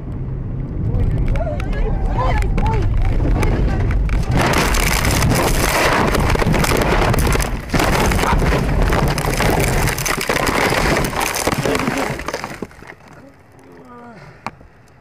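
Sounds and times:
car crashing and tumbling: 3.0s - 13.2s.

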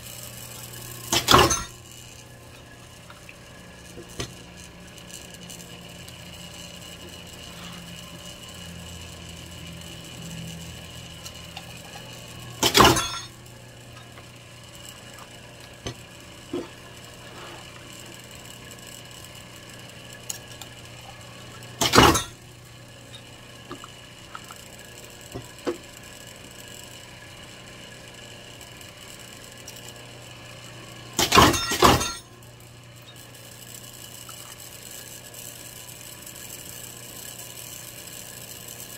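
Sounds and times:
press humming: 0.0s - 26.6s.

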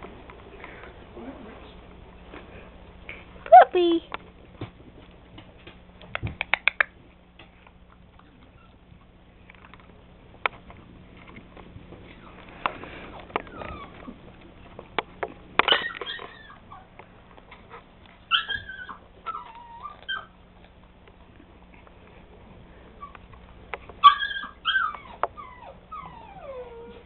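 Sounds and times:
sharp clicks and knocks: 4.1s - 7.8s
puppy whimpering: 13.4s - 14.2s, 15.7s - 16.9s, 18.3s - 20.4s, 24.0s - 27.0s.

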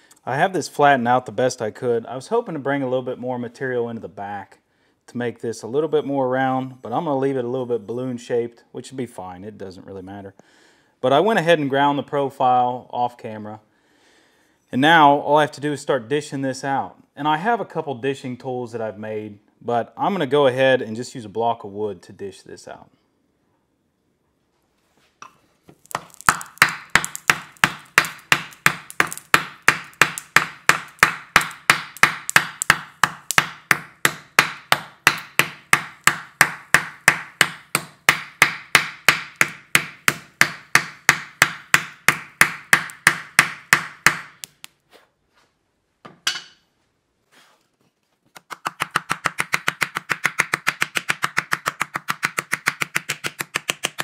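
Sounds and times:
hammer striking hot steel: 25.8s - 44.7s.

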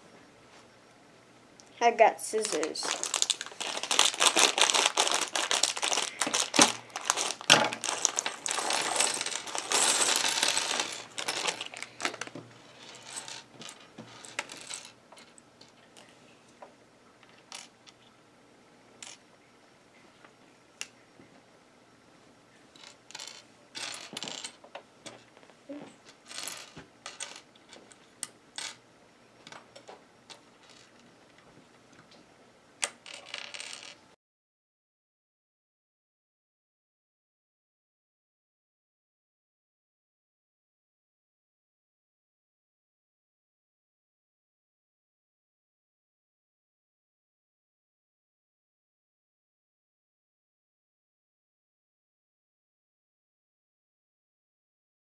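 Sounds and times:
plastic bag crinkling: 2.3s - 13.4s
plastic bricks clattering on table: 2.3s - 15.3s, 22.8s - 25.2s, 26.2s - 28.0s, 32.8s - 34.0s.

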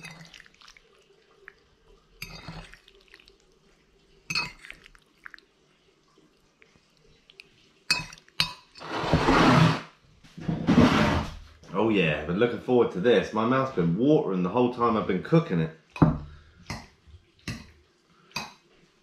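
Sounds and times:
fork clinking against ceramic bowl: 7.9s - 8.8s.

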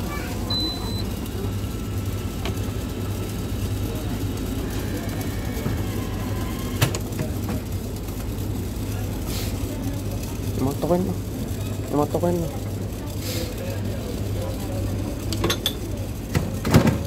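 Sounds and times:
low machinery hum: 0.0s - 17.0s
faint background voices: 8.6s - 17.0s.

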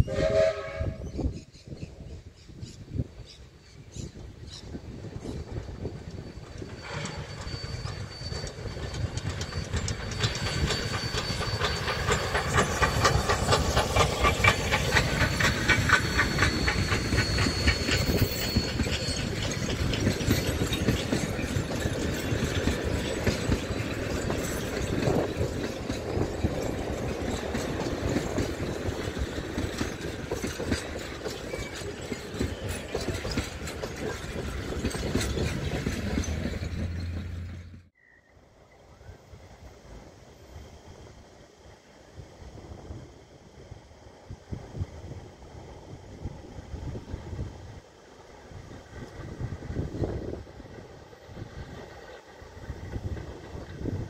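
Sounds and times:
steam locomotive passing: 0.0s - 54.0s
wheels clacking over rail joints: 5.2s - 37.9s.

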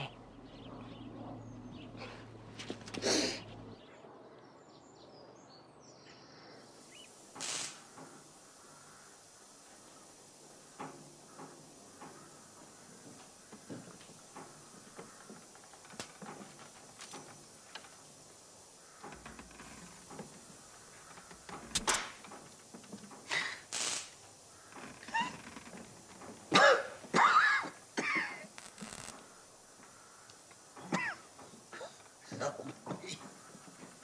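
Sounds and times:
faint ticks and creaks: 6.1s - 34.0s
strained gasps: 23.3s - 23.8s.

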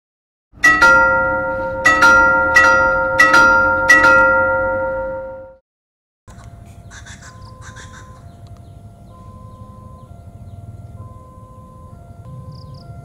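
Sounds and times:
metal bell double strikes: 0.6s - 5.6s.

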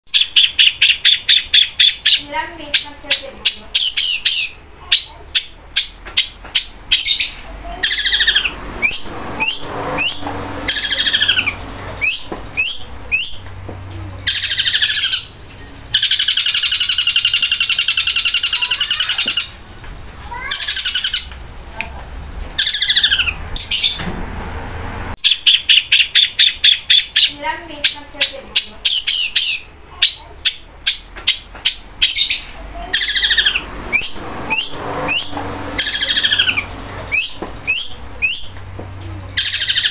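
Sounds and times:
very fast bird trill: 0.1s - 13.4s, 14.2s - 19.6s, 20.4s - 21.3s, 22.6s - 24.0s, 25.2s - 38.6s, 39.4s - 39.9s
shrike singing: 14.2s - 19.6s.

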